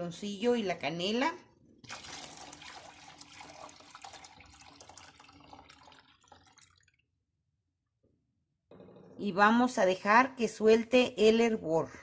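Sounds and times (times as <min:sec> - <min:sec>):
milk pouring and splashing into pot: 0:01.7 - 0:07.2.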